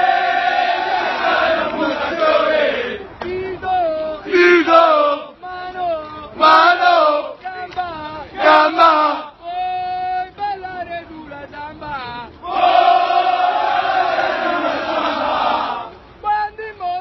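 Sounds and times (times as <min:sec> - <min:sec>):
group singing in unison: 0:00.0 - 0:03.4, 0:04.2 - 0:05.3, 0:06.4 - 0:07.4, 0:08.3 - 0:09.3, 0:12.4 - 0:16.0.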